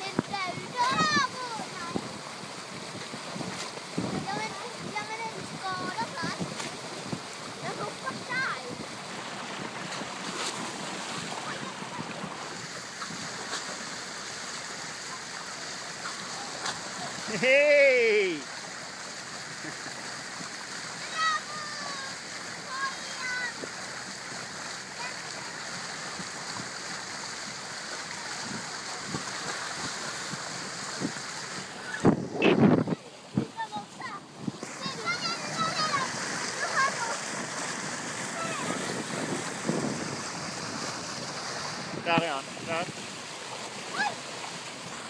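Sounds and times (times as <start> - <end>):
wind on microphone: 0.0 - 13.5, 28.4 - 43.2
dolphins splashing: 0.0 - 45.0
water rushing along a hull: 0.0 - 45.0.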